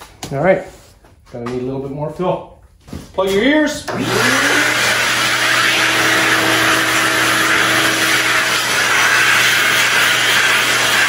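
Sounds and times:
shop vacuum running: 3.2s - 11.0s
vacuum brush drawn over metal: 3.9s - 11.0s.

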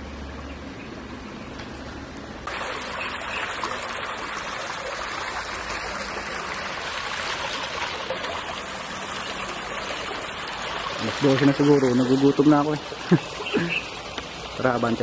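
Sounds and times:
stream running over rocks: 0.9s - 15.0s.

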